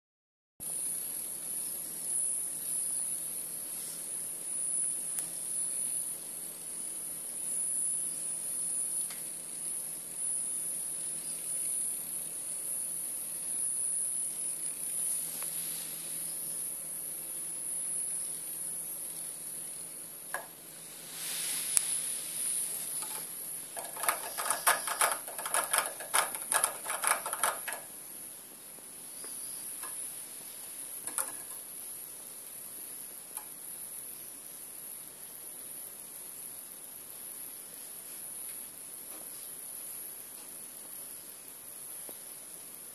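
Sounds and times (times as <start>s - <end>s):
toy buzzing with high-pitched whine: 21.7s - 28.0s
rapid rattling ticks: 23.0s - 27.9s, 31.0s - 31.6s.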